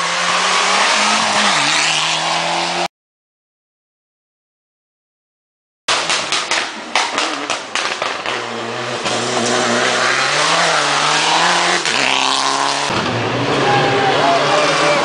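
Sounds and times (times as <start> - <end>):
rally car engine revving: 0.0 - 2.9, 5.9 - 15.0
rally car engine popping: 5.9 - 13.3.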